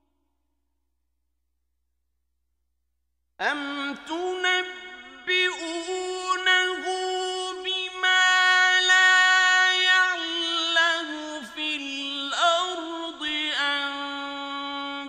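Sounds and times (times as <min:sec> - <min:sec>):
man reciting in long melodic note: 0:03.4 - 0:15.0.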